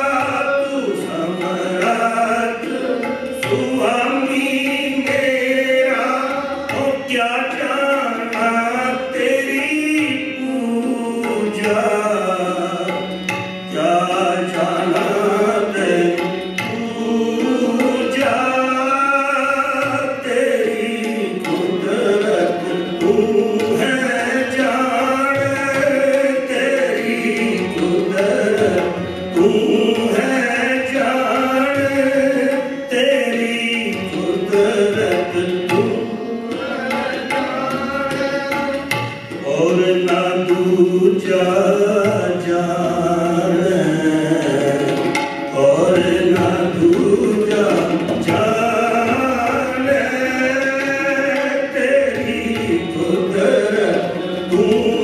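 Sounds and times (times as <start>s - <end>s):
harmonium sustained tone: 0.0s - 55.0s
men singing a hymn: 0.0s - 55.0s
tabla drum beat: 0.0s - 55.0s.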